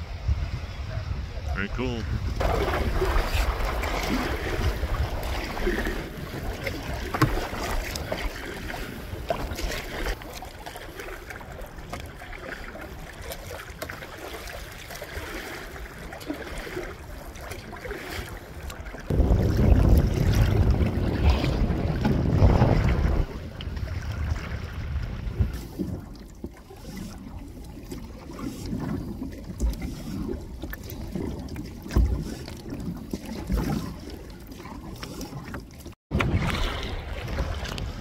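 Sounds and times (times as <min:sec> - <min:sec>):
wind buffeting microphone: 0:00.0 - 0:10.1, 0:19.1 - 0:26.2, 0:36.1 - 0:38.0
water lapping against canoe: 0:00.1 - 0:38.0.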